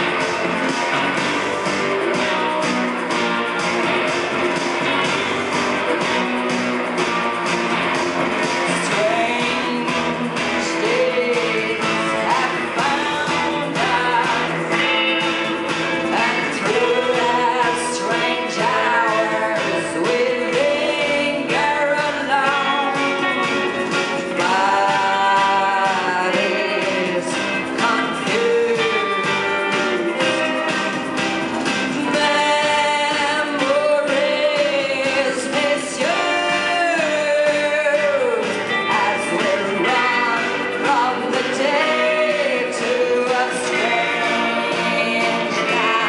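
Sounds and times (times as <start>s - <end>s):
bending guitar melody: 0.0s - 46.0s
live band playing: 0.0s - 46.0s.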